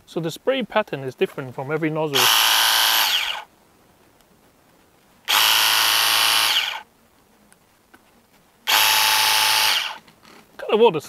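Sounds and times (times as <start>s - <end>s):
pressure washer pump motor running: 2.1s - 3.5s, 5.3s - 6.8s, 8.7s - 10.0s.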